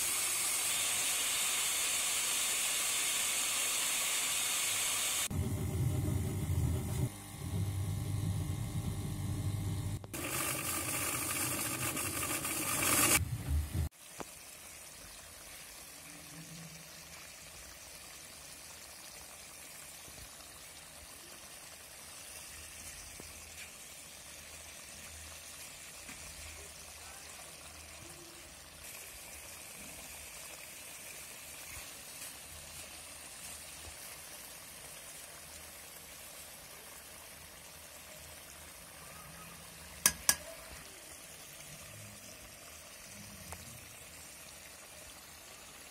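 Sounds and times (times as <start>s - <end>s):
electric spice grinder running: 0.0s - 13.2s
curry bubbling in a pot: 13.9s - 45.9s.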